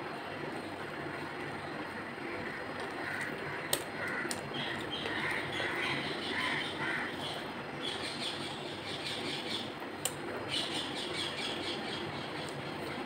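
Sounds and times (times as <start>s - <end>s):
small birds chirping: 4.2s - 13.0s.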